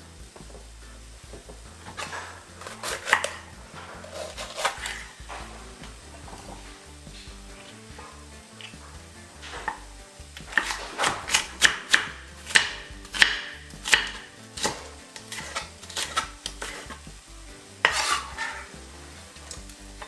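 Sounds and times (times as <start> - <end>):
knife scraping board: 1.8 - 5.5, 10.5 - 17.0, 17.8 - 18.8
knife chopping on wooden board: 1.9 - 5.1, 10.4 - 17.0, 17.8 - 18.6.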